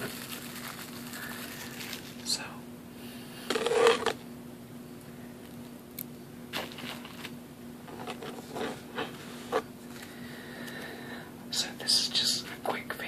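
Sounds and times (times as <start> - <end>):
plastic bag crinkling: 0.0 - 2.3, 6.6 - 8.8.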